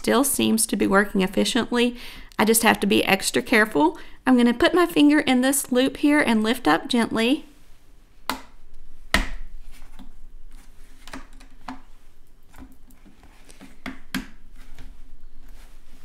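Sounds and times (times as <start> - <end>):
faint rustling: 14.4 - 16.0.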